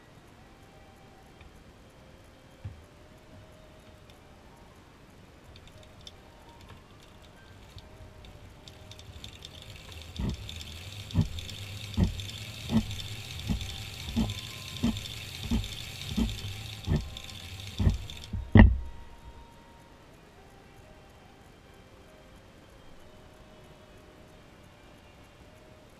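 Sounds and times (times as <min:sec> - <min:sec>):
knitting machine needles clattering: 0:05.4 - 0:18.9
knitting machine knocking: 0:07.6 - 0:18.9.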